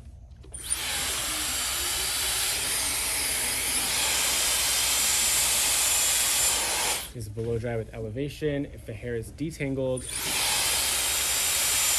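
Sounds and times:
hair dryer blowing: 0.6 - 7.1, 10.0 - 11.9.

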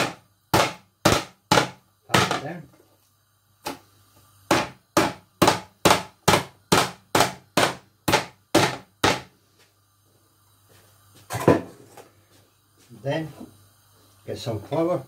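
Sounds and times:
rolling pin pounding chicken: 0.0 - 2.6, 4.5 - 9.3.

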